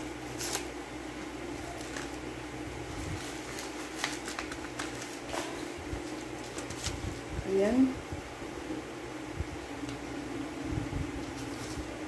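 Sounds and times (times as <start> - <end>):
steady low hum: 0.0 - 12.0
paper envelope tearing: 0.3 - 0.7, 1.7 - 2.2, 3.1 - 7.0.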